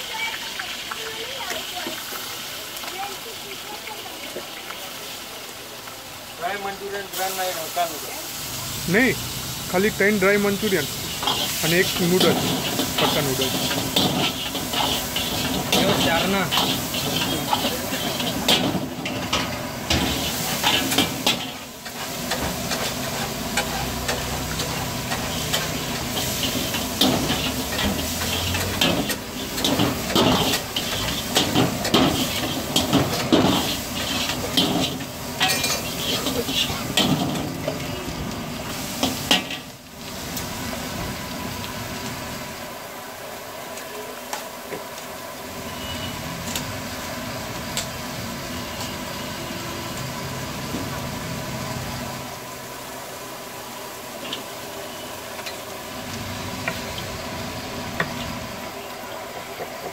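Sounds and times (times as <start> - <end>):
food sizzling: 0.0 - 59.9
metal ladle scraping wok: 10.8 - 38.0.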